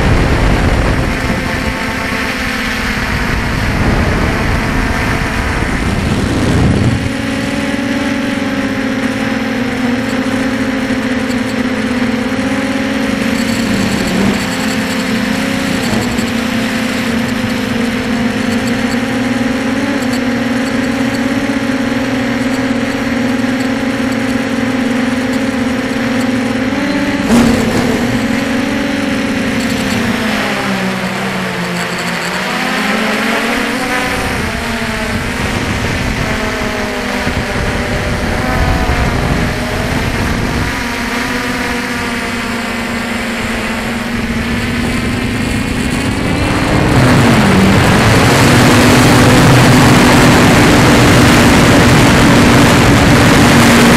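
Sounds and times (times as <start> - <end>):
rushing air: 0.0 - 7.4
drone motors humming: 0.0 - 53.9.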